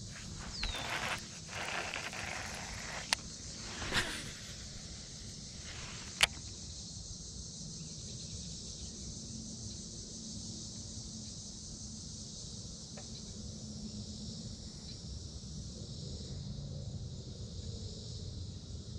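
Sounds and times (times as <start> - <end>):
high-pitched insect chorus: 0.0 - 16.4
fishing reel click: 0.2 - 4.9.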